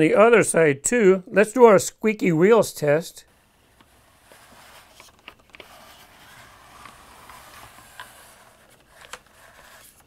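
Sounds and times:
toy truck rolling on carpet: 3.3s - 10.0s.

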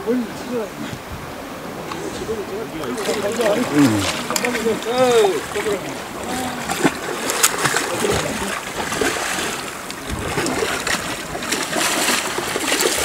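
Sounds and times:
sea waves: 0.0s - 13.0s
wind: 0.0s - 13.0s
fish thrashing and splashing water: 2.8s - 13.0s.

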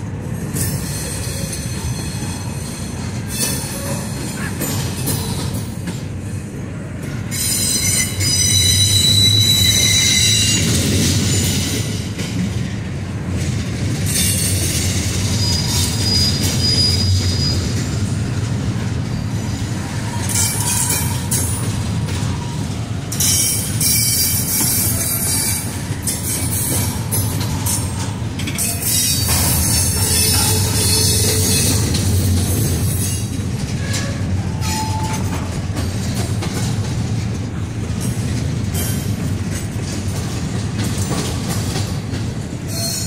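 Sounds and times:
train wheels rumbling on rails: 0.0s - 43.0s
high-pitched wheel squeal: 7.3s - 10.8s, 15.2s - 17.8s.

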